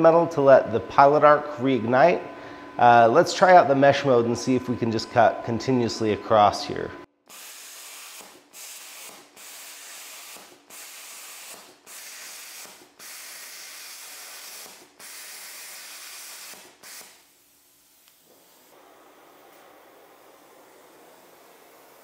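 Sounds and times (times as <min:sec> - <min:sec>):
plasma cutter arc hissing: 0:07.3 - 0:22.0.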